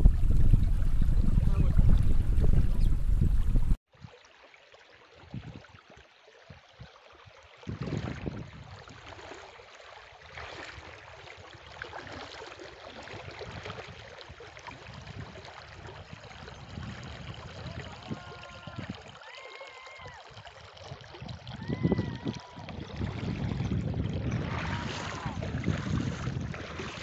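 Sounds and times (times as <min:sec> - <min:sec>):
wind rumble on microphone: 0:00.0 - 0:03.8, 0:05.2 - 0:05.8, 0:07.6 - 0:09.2, 0:12.9 - 0:19.2, 0:20.8 - 0:27.0.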